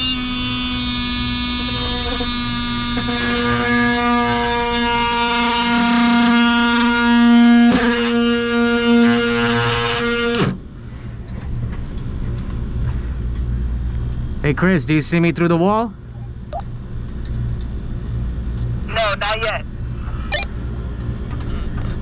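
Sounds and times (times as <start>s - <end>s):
oscillating multi-tool buzzing: 0.0s - 10.5s.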